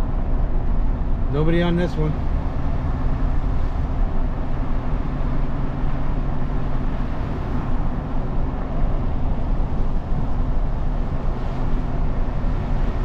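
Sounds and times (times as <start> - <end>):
truck engine hum: 0.0 - 13.0.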